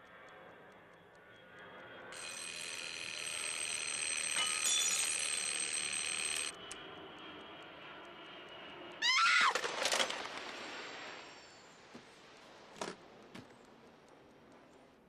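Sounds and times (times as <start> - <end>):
clock ticking: 2.1 - 6.8
bell ringing: 2.2 - 6.6.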